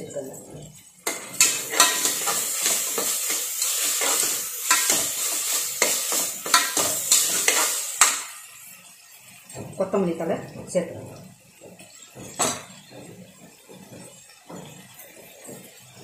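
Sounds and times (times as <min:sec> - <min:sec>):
onions sizzling: 0:00.0 - 0:16.0
spoon scraping pot: 0:01.1 - 0:08.2.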